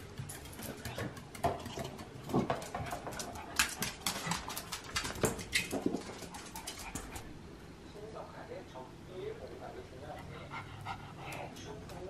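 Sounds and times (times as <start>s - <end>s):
dog claws clicking on floor: 0.0s - 7.2s.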